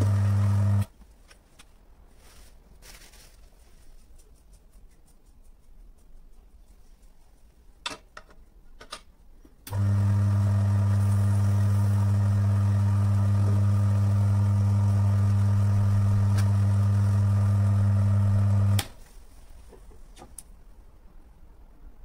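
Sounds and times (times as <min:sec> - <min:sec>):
electric motor humming: 0:00.0 - 0:00.9, 0:09.7 - 0:18.9.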